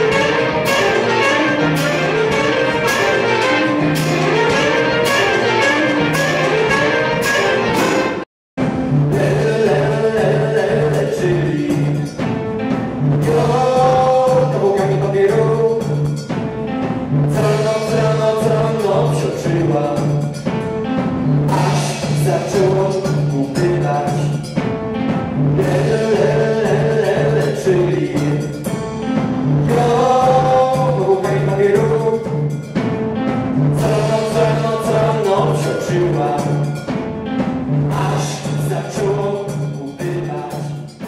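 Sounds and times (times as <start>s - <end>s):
live band music: 0.0s - 41.0s
person singing: 9.1s - 12.1s, 25.6s - 28.6s, 33.8s - 36.8s.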